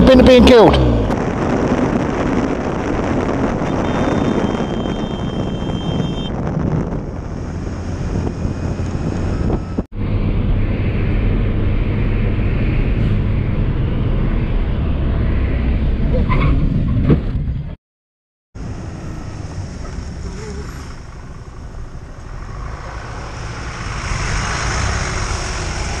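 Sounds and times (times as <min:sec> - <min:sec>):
motorcycle engine: 0:00.0 - 0:15.6, 0:18.9 - 0:26.0
road noise: 0:00.0 - 0:17.8, 0:18.6 - 0:26.0
wind on microphone: 0:00.8 - 0:09.9.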